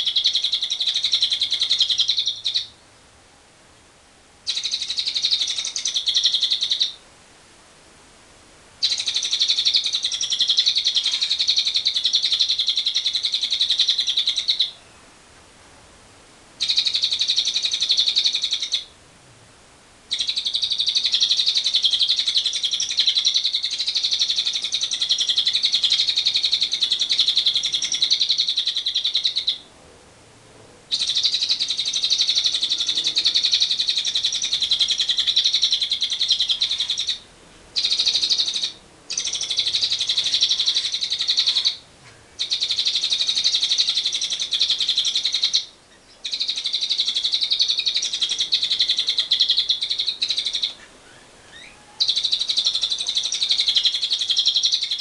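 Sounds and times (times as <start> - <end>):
lovebird rattling trill: 4.4 - 7.0, 8.8 - 14.8, 16.6 - 18.9, 20.1 - 29.6, 30.9 - 37.2, 37.8 - 41.8, 42.4 - 50.8, 51.5 - 55.0.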